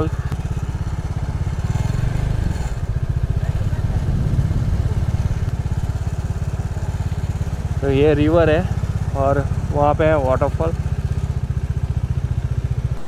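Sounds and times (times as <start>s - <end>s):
motorcycle engine idling: 0.0s - 13.0s.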